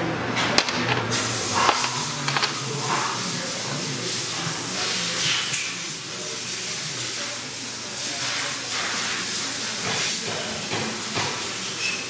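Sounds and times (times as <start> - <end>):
metal pieces handled on workbench: 0.6 - 2.6.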